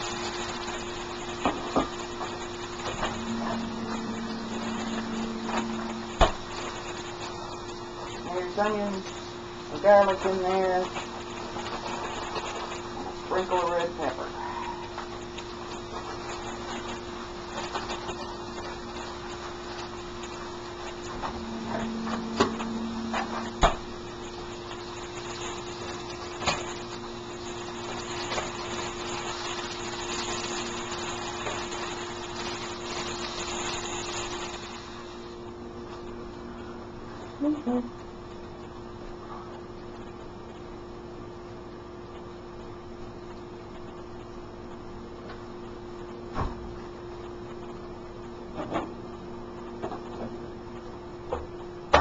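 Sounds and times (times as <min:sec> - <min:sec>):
hash browns sizzling in a pan: 0:00.0 - 0:37.2
steady low hum: 0:00.0 - 0:52.0.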